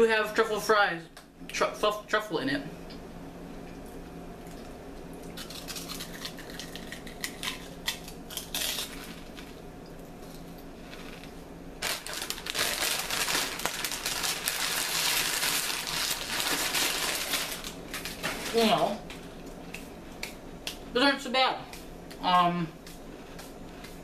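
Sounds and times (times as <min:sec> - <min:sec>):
potato chip crunching: 0:05.3 - 0:09.6, 0:10.2 - 0:18.8.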